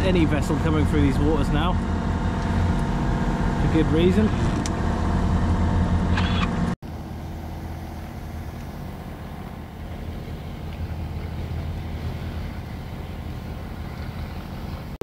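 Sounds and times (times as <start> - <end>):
boat engine running: 0.0 - 15.0
water noise: 0.0 - 15.0
wind: 0.0 - 15.0.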